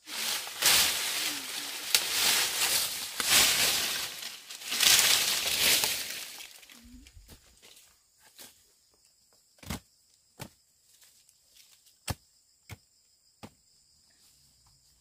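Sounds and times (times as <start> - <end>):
loud rustling and crunching: 0.0 - 7.4.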